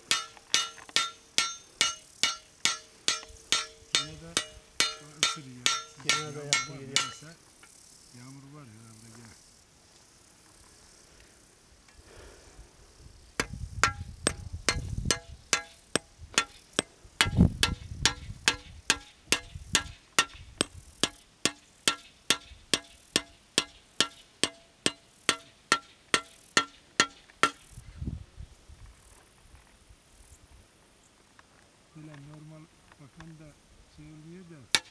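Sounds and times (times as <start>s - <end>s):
hammer striking blade on anvil: 0.0s - 7.3s, 13.4s - 20.4s, 21.0s - 27.6s.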